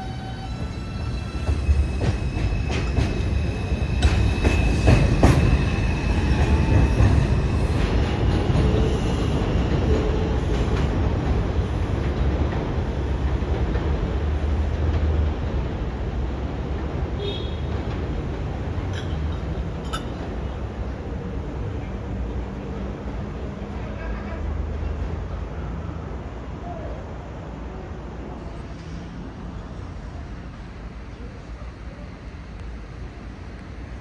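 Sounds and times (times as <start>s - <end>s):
rail joint clicks: 0.0s - 15.5s, 17.7s - 20.6s
subway train rumbling: 0.0s - 34.0s.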